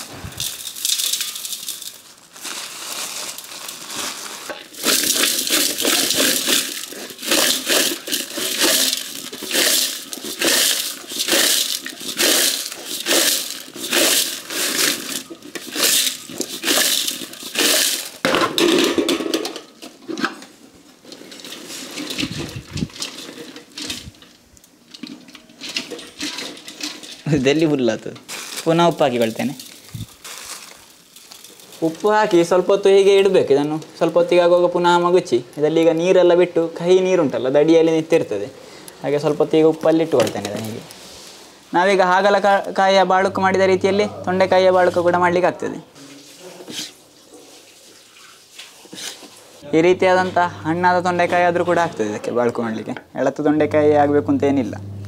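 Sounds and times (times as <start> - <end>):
vegetable slices rustling in steel bowl: 0.0 - 18.2, 28.3 - 32.2, 46.1 - 49.6.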